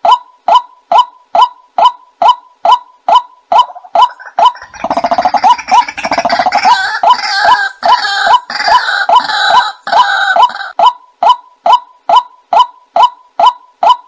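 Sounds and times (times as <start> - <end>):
harsh gurgling bird chorus: 4.0 - 7.6.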